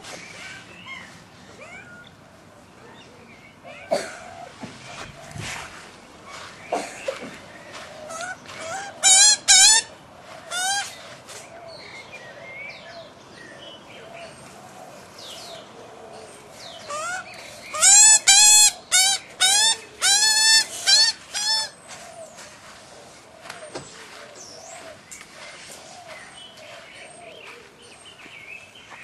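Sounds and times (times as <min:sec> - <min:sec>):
ducklings peeping: 0:16.8 - 0:22.6.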